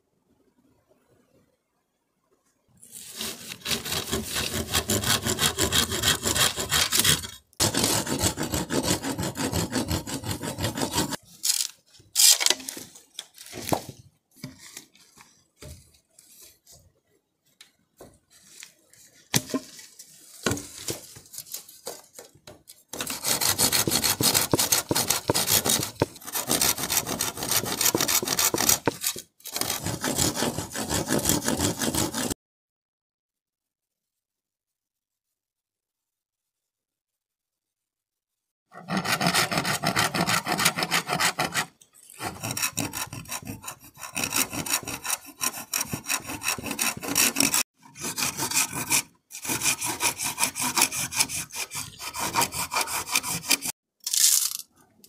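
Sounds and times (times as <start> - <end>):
saw cutting bamboo: 3.0 - 11.2, 22.9 - 32.4, 38.7 - 53.8.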